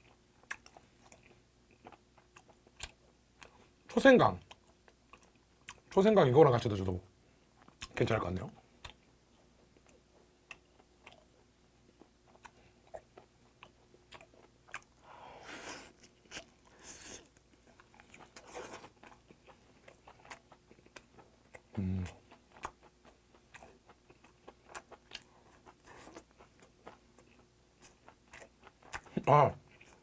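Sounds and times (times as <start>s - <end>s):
wet chewing and mouth smacks: 0.0s - 3.7s, 8.8s - 15.0s, 15.9s - 30.0s
person humming through closed lips: 21.8s - 22.2s.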